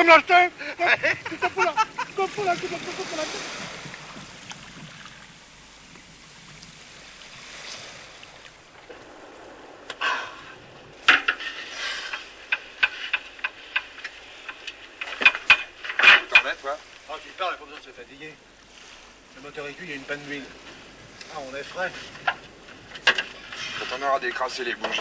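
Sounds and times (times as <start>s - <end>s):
faint wash of water: 0.0s - 25.0s
hand tools tapping on metal: 11.1s - 16.5s.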